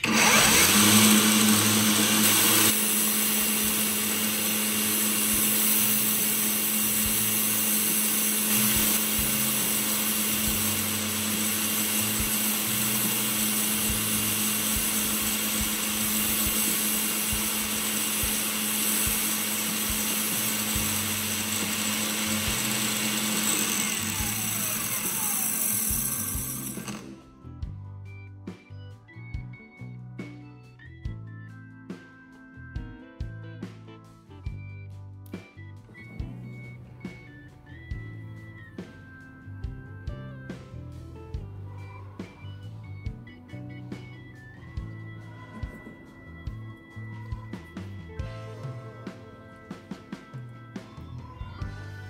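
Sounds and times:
small electric power tool running: 0:00.0 - 0:27.2.

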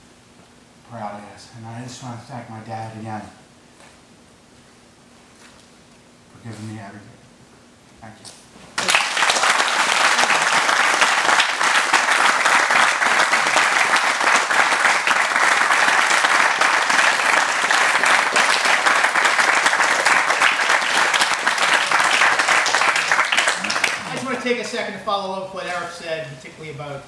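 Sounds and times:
group of people applauding: 0:08.8 - 0:24.8.

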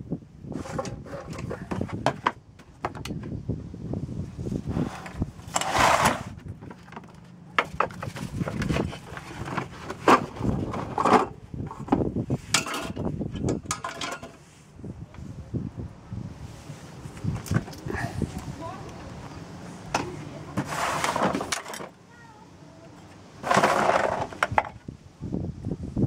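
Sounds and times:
rustling scrape: 0:00.5 - 0:02.0, 0:04.4 - 0:13.4, 0:14.0 - 0:15.3, 0:20.5 - 0:21.9, 0:23.4 - 0:24.6.

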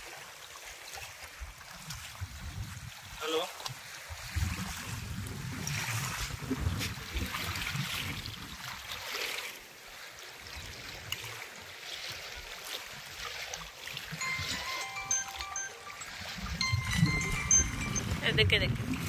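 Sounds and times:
water splashing and sloshing: 0:05.7 - 0:14.6.

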